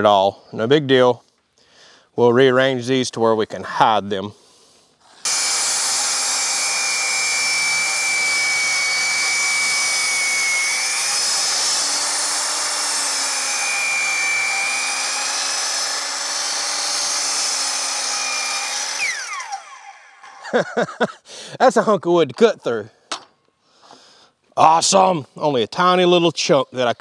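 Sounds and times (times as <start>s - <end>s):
miter saw cutting wood: 5.0s - 20.5s.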